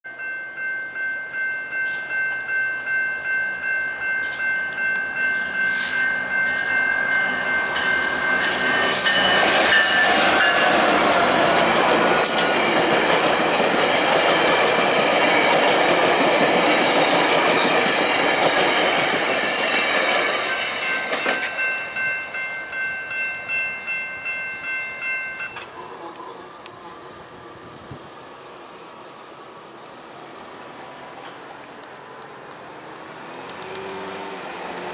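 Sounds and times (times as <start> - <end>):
level crossing warning bell: 0.1 - 26.0
train rumbling over rails: 2.8 - 34.9.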